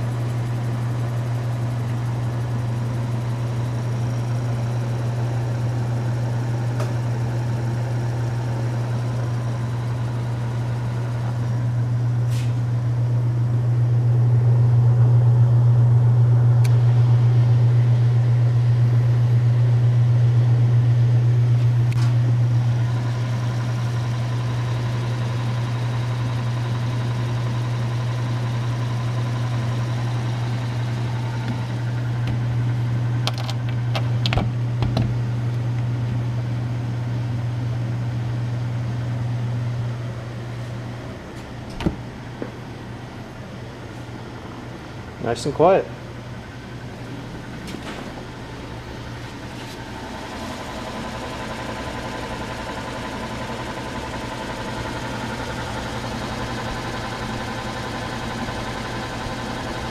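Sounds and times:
refrigerator compressor humming: 0:00.0 - 0:59.9.

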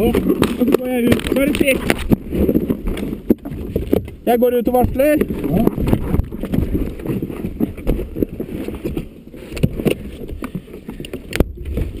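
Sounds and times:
knocks and clunks: 0:00.0 - 0:12.0
rustling inside car: 0:00.0 - 0:12.0.

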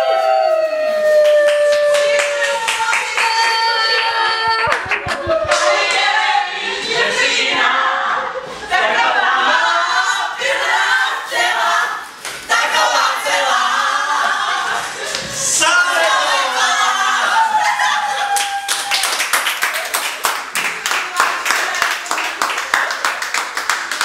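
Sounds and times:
group of voices singing: 0:03.0 - 0:18.0
hand claps: 0:04.5 - 0:06.0, 0:18.4 - 0:24.0.

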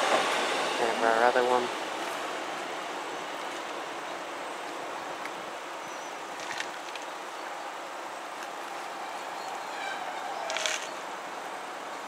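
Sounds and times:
diesel train running slowly: 0:00.0 - 0:06.6.

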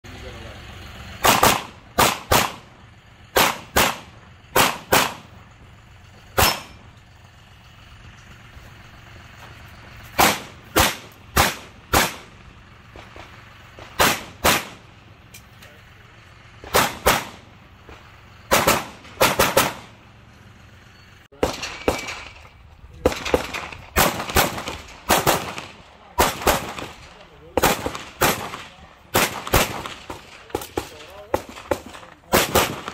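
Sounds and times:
pistol shots: 0:01.2 - 0:02.7, 0:03.3 - 0:05.4, 0:06.4 - 0:06.8, 0:10.2 - 0:12.4, 0:13.9 - 0:14.9, 0:16.6 - 0:17.5, 0:18.5 - 0:20.0, 0:21.4 - 0:32.9.

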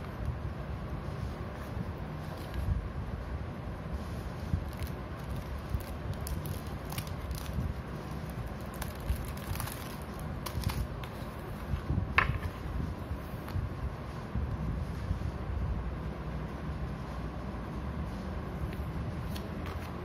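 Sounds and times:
plastic and cardboard rustling: 0:04.5 - 0:12.6.

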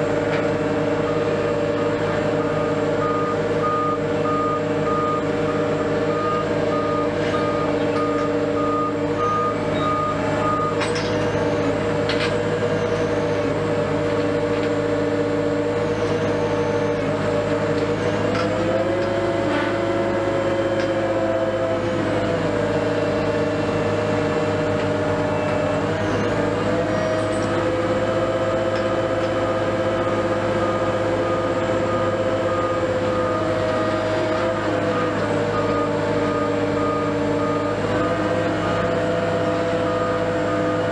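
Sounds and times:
crane diesel engine running: 0:00.0 - 0:40.9
reversing alarm beeps: 0:01.0 - 0:11.8, 0:15.7 - 0:17.1, 0:29.4 - 0:40.9.

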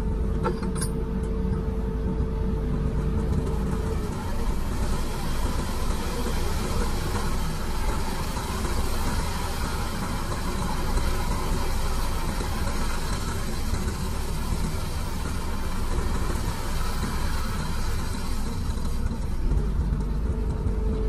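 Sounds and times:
excavator diesel engine running: 0:00.0 - 0:21.0.

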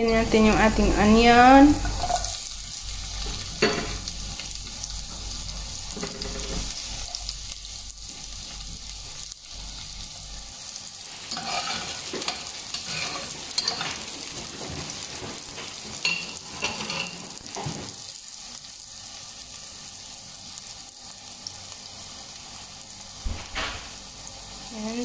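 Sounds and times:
garlic and onion sizzling in oil: 0:00.0 - 0:25.0
spatula scraping a pot: 0:01.8 - 0:02.4, 0:06.0 - 0:07.2, 0:11.3 - 0:15.0.

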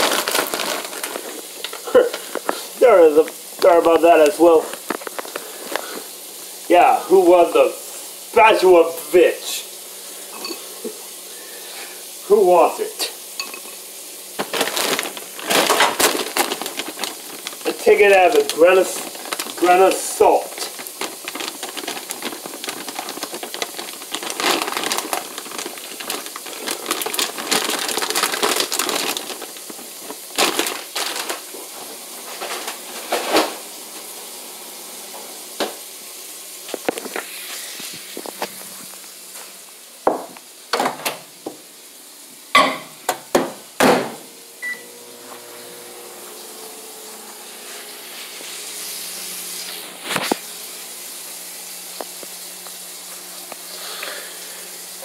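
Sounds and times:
food frying in a pan: 0:00.0 - 0:55.0
utensils and dishes clinking: 0:10.3 - 0:10.7, 0:13.4 - 0:13.8, 0:42.6 - 0:43.0.

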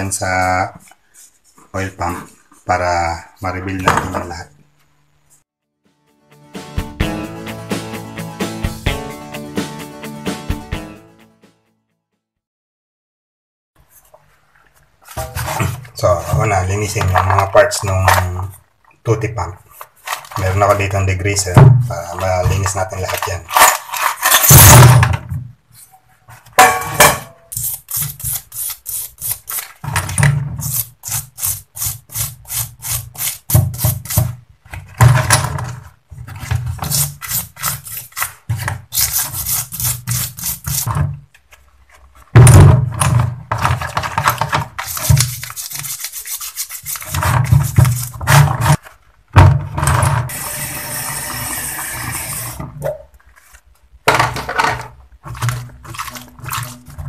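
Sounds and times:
brush scrubbing metal parts: 0:15.0 - 0:18.6, 0:22.2 - 0:24.7, 0:26.4 - 0:34.4, 0:35.2 - 0:41.0, 0:43.5 - 0:49.0, 0:54.8 - 0:57.0.

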